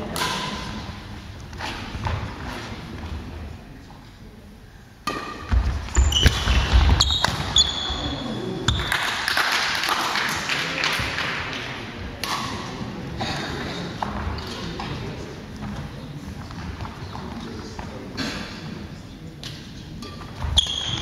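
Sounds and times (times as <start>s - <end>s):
racket hitting shuttlecock: 0.1s - 0.8s, 5.0s - 7.5s, 12.2s - 12.8s
shoe squeaks: 5.9s - 8.5s, 20.4s - 21.0s.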